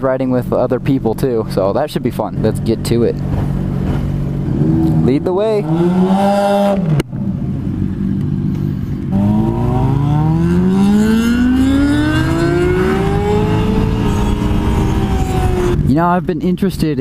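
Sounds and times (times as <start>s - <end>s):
motorcycle engine accelerating: 2.1s - 15.9s.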